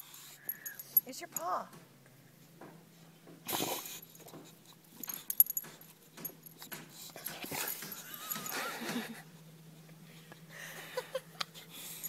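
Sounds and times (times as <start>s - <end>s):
dog sniffing and snuffling: 3.4s - 8.1s.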